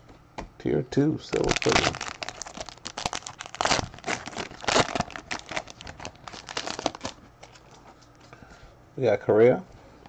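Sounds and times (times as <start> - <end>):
plastic packaging crinkling: 1.3 - 7.9.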